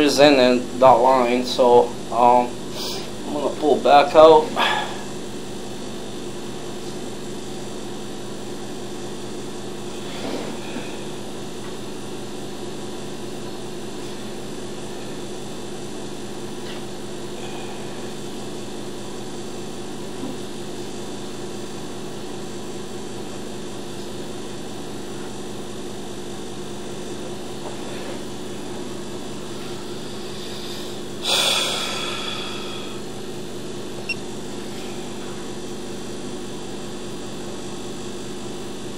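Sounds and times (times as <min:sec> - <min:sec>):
steady mechanical hum: 0:00.0 - 0:38.9.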